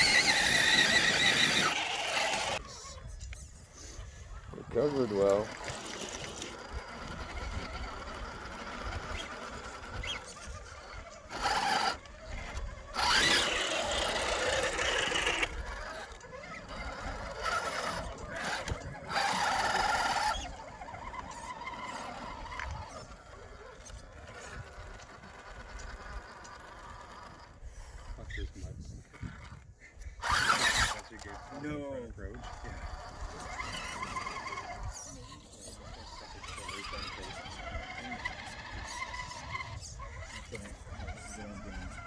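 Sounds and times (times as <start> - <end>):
electric motors whining: 0.0 - 42.0.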